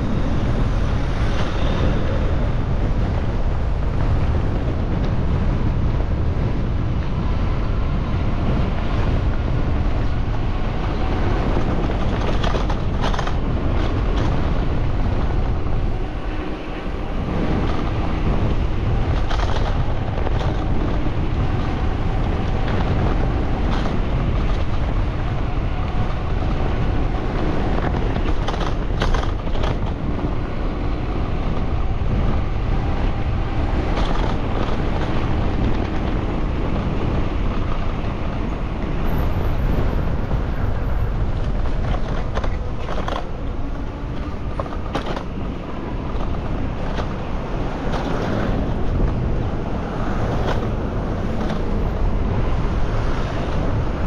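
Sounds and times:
low rumble of traffic: 0:00.0 - 0:54.0
wind buffeting microphone: 0:00.0 - 0:54.0.

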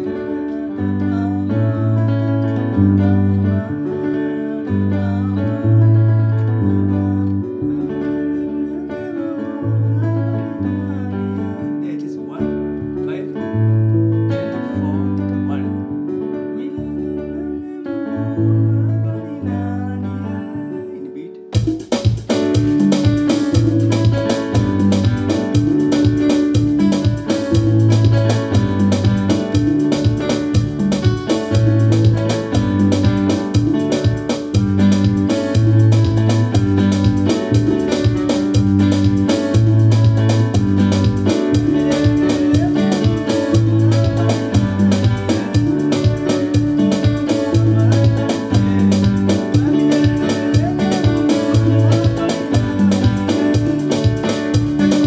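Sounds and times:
electronic keyboard bass and chords: 0:00.0 - 0:08.8, 0:12.3 - 0:17.8, 0:21.6 - 0:55.0
steady electronic beat: 0:21.6 - 0:55.0.

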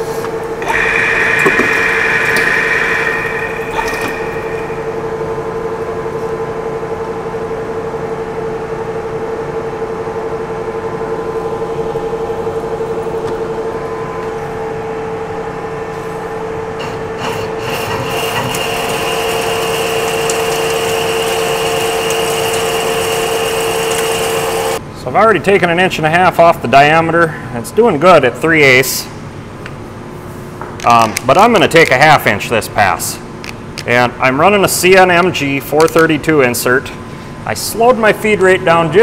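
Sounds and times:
high whine: 0:00.0 - 0:06.4
metal lathe cutting steel: 0:00.6 - 0:05.3, 0:16.8 - 0:24.8.

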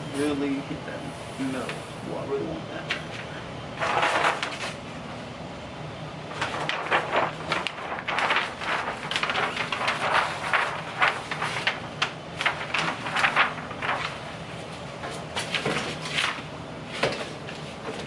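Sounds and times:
paper rustling and crinkling: 0:02.8 - 0:04.8, 0:06.3 - 0:18.0.

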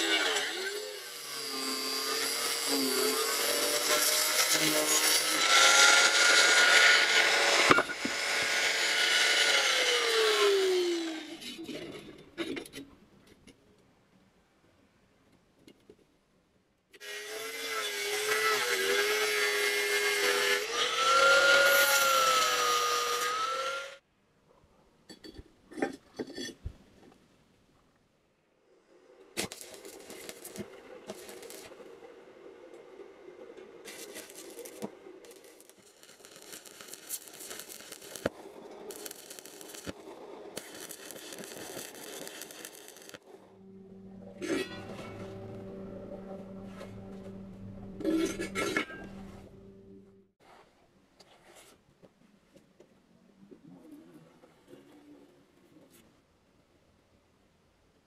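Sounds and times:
angle grinder cutting steel: 0:00.0 - 0:11.7, 0:17.0 - 0:24.0, 0:33.9 - 0:40.0, 0:40.6 - 0:50.2
welding arc crackling and sizzling: 0:29.4 - 0:31.8, 0:33.8 - 0:45.8.

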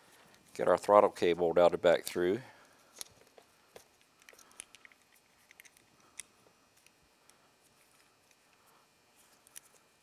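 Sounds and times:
faint small clicks and ticks: 0:03.0 - 0:08.6.

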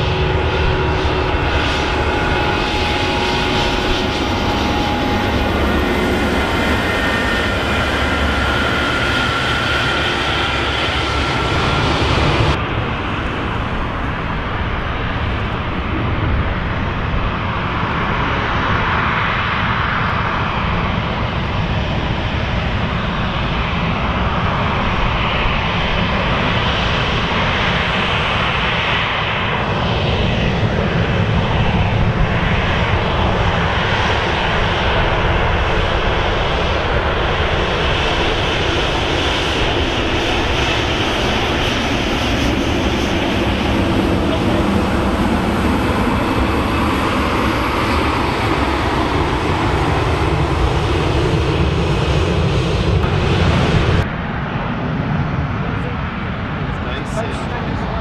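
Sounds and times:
jet engines running: 0:00.0 - 0:58.0.

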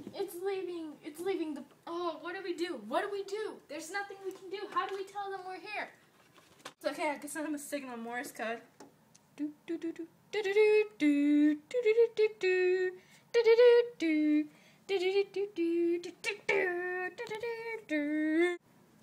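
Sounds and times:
person singing doo notes: 0:09.4 - 0:18.6.

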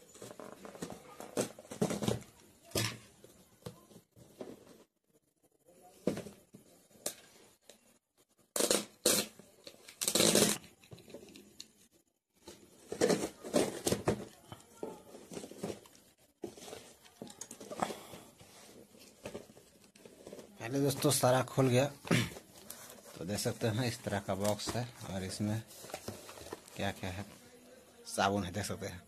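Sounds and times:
packing tape ripping: 0:08.5 - 0:10.8
cardboard rustling: 0:12.4 - 0:27.4.

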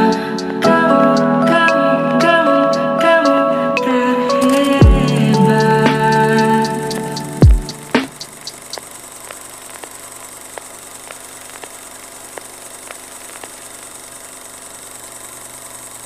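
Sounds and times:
film projector whirring: 0:06.4 - 0:16.0.

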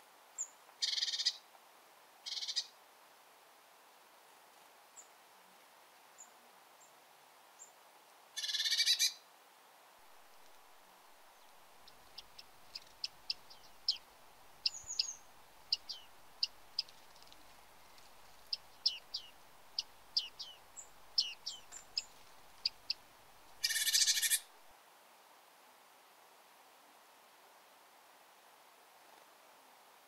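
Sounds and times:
high sharp bird calls: 0:08.4 - 0:09.2, 0:11.4 - 0:23.0, 0:23.6 - 0:24.5
buzzy bird rasp: 0:23.6 - 0:24.4.

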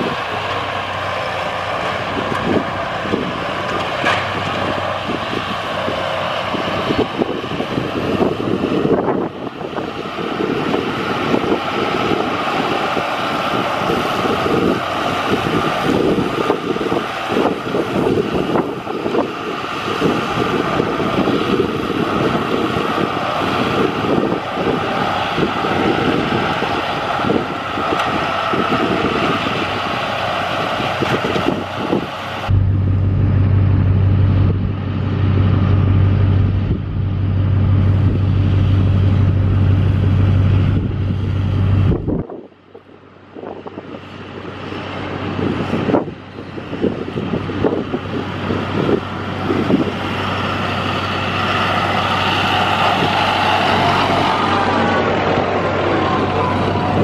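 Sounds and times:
snowblower throwing snow: 0:00.0 - 0:42.2
tractor diesel engine running: 0:00.0 - 0:57.0.

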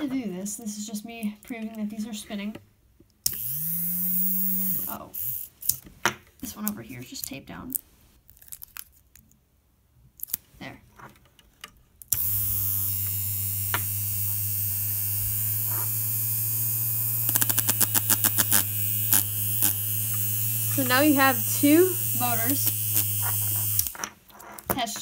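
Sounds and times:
electric motors whirring: 0:03.3 - 0:05.8, 0:12.1 - 0:24.2.

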